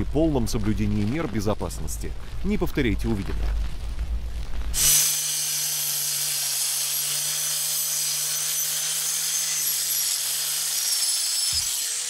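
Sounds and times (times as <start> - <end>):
angle grinder cutting board: 4.8 - 12.0.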